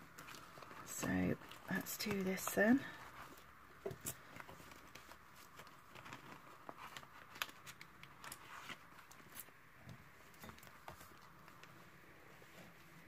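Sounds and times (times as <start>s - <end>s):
plastic and paper rustling: 0.0s - 13.0s.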